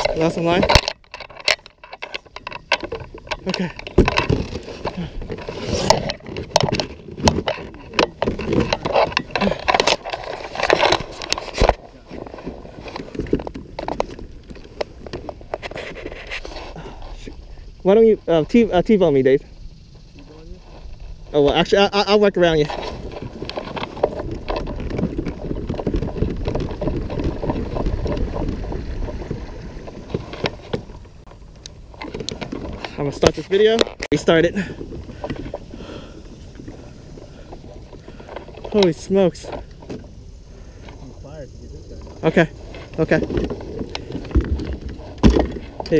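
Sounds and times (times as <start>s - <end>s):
small clicks and knocks: 0.0s - 16.5s
wind rumbling on microphone: 0.0s - 45.9s
water washing at kayak hull: 20.2s - 45.9s
gear knocking on plastic kayak: 22.8s - 31.2s.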